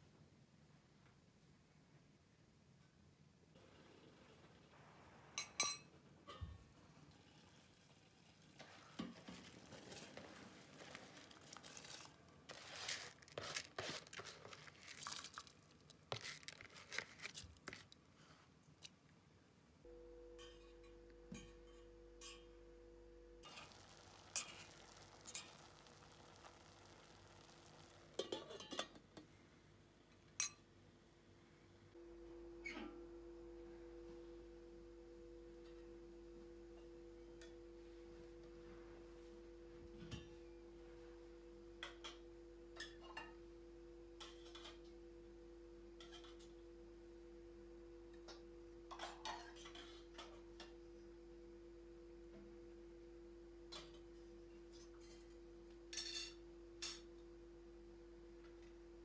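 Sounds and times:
faint steady hum: 0.0 - 59.0
utensils clinking on metal pots: 28.2 - 29.2.

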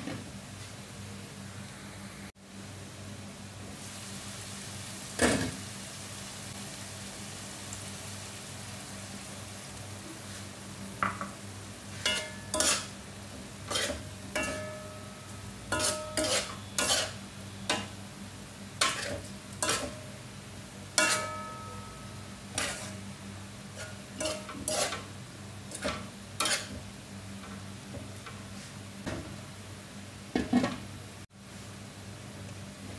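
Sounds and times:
food sizzling: 3.6 - 28.2
metal ladle scraping a wok: 12.0 - 13.0, 13.6 - 14.7, 15.7 - 17.9, 18.8 - 19.9, 21.0 - 21.4, 22.5 - 23.0, 23.7 - 25.1, 25.7 - 26.8.

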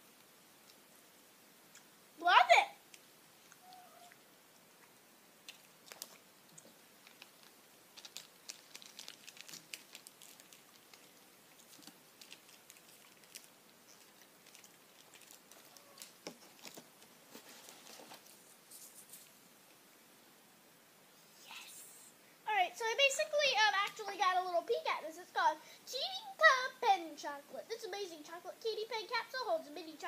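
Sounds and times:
paper leaflet crinkling: 5.5 - 19.4.

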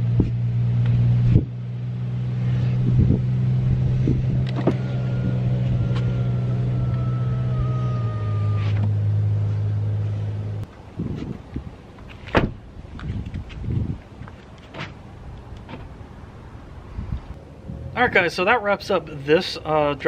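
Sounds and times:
electric motor whine: 2.4 - 9.4.

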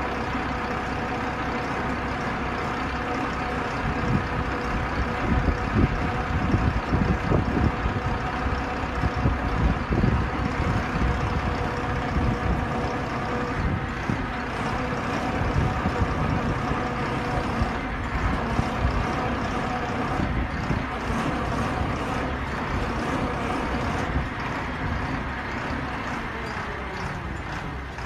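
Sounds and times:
diesel engine running: 0.0 - 28.0.

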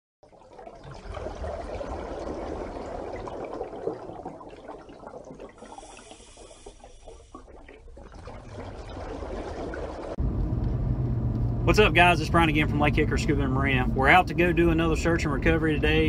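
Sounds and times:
water bubbling and trickling: 0.2 - 10.2.

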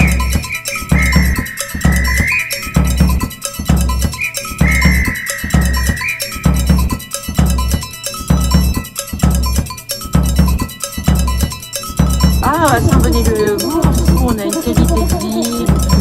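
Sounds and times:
mouth-blown whistle note: 0.0 - 3.0, 4.2 - 6.6
music with drum beat: 0.0 - 16.0.

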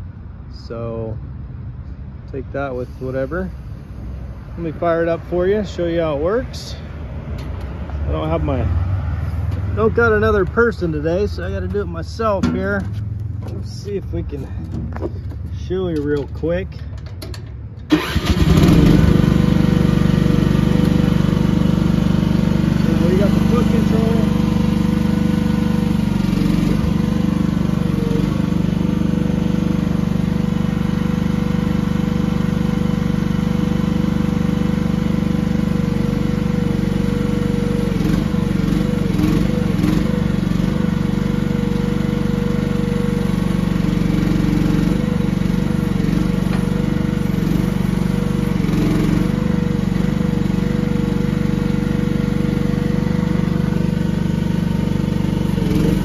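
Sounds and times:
small excavator engine running: 2.6 - 56.0
hydraulic whine: 17.2 - 34.4, 35.3 - 56.0.

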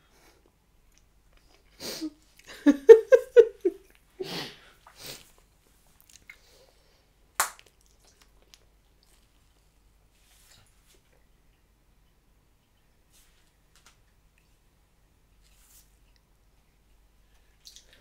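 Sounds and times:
soft breathy noises: 4.1 - 7.3
person chewing gum: 6.0 - 6.5, 7.6 - 9.7
gum bubble snap: 7.4 - 8.6.

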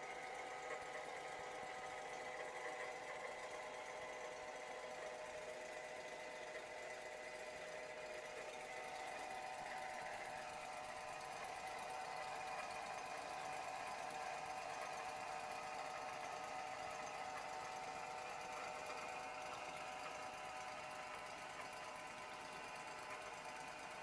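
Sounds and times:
generator engine humming: 0.0 - 24.0.

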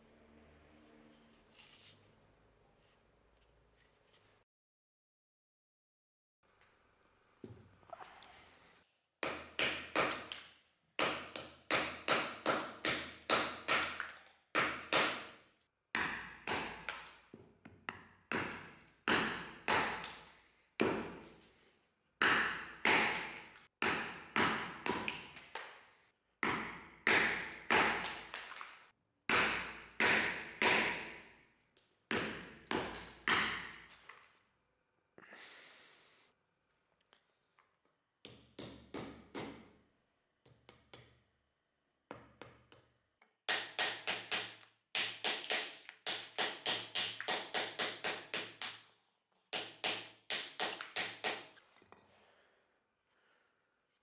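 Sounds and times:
hammer striking stone: 9.2 - 10.4, 11.0 - 15.4, 43.5 - 48.8, 49.6 - 51.5.

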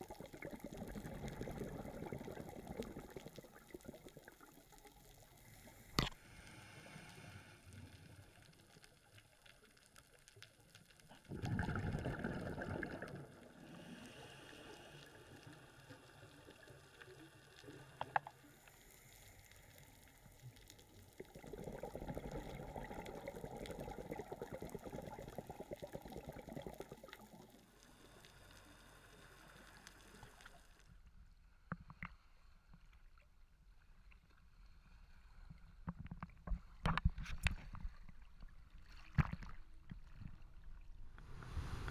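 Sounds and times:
underwater bubbles rushing: 0.0 - 5.2, 11.2 - 13.7, 21.0 - 27.6.

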